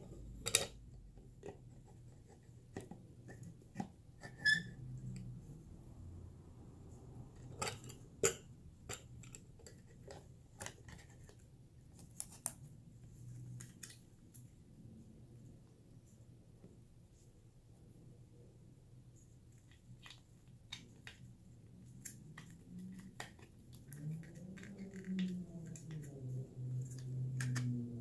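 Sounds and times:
short squeak: 0:04.3 - 0:04.8.

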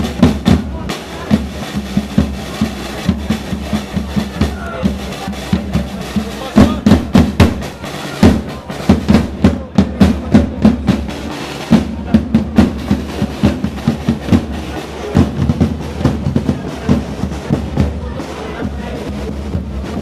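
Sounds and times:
marching drums beating: 0:00.0 - 0:20.0.

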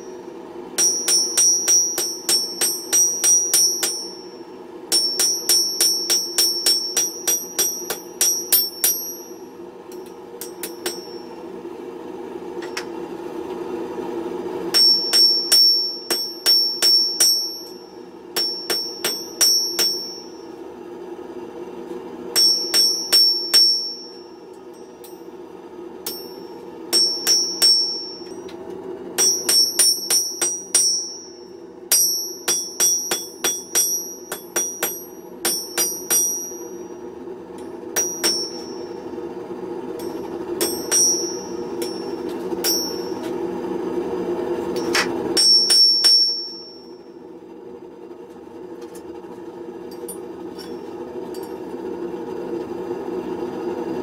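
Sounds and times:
hammer striking steel on anvil: 0:00.0 - 0:11.5, 0:12.6 - 0:13.0, 0:14.7 - 0:20.6, 0:22.3 - 0:25.4, 0:26.0 - 0:28.6, 0:29.2 - 0:39.2, 0:40.0 - 0:43.4, 0:44.7 - 0:47.1, 0:49.9 - 0:51.7
steady low hum: 0:00.0 - 0:54.0
bell-like anvil ring: 0:00.8 - 0:11.5, 0:14.7 - 0:20.5, 0:22.4 - 0:25.3, 0:26.0 - 0:28.6, 0:29.2 - 0:37.0, 0:37.6 - 0:39.1, 0:40.0 - 0:43.4, 0:44.7 - 0:47.1.

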